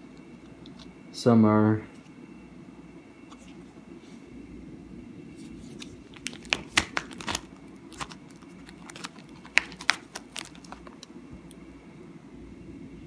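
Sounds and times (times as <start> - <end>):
plastic sleeves crinkling: 5.4 - 11.1.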